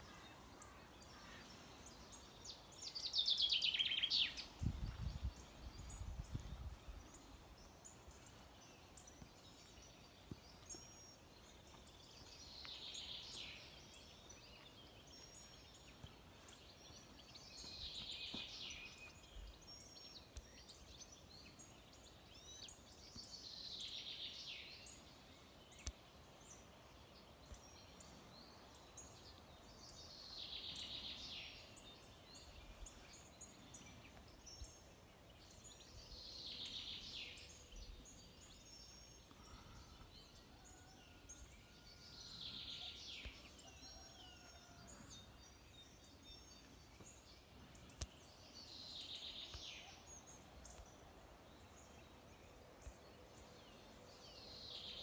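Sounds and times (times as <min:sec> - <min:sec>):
songbird singing: 0:00.0 - 0:55.0.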